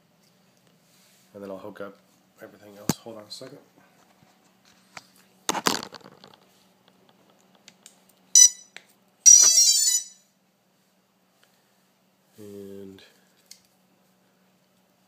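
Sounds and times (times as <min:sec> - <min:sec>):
electronics beeping: 0:08.4 - 0:08.7, 0:09.3 - 0:10.2.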